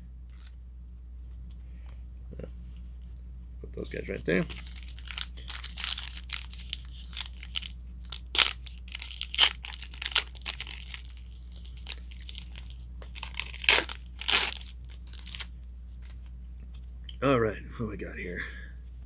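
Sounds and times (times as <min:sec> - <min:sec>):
plastic packaging crinkling: 0:04.3 - 0:15.5.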